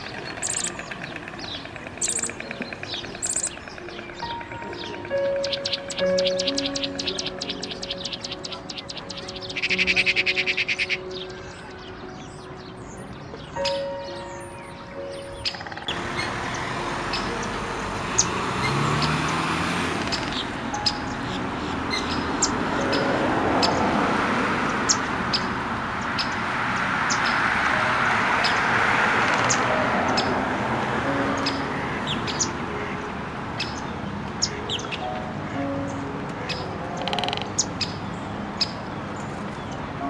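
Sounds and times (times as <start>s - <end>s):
high bird chirps: 0.0s - 19.4s.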